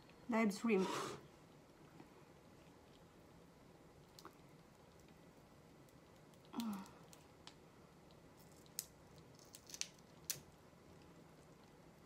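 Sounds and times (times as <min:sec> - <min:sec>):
shrimp shell clicks and crackles: 0:04.0 - 0:10.6.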